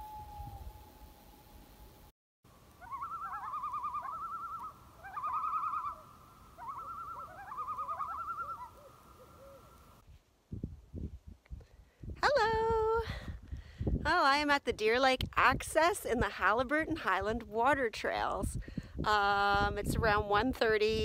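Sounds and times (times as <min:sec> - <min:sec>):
bird trilling: 0:02.8 - 0:09.8.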